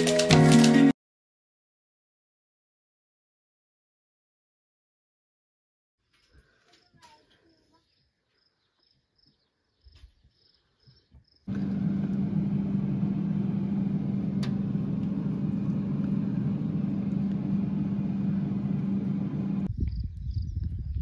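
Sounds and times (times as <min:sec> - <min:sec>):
freezer humming: 0:11.5 - 0:19.7
click: 0:14.4 - 0:15.8.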